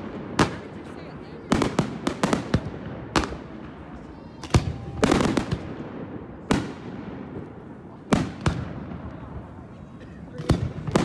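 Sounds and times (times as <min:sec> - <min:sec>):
fireworks bangs: 0:00.0 - 0:11.0
fireworks crackling: 0:00.0 - 0:11.0.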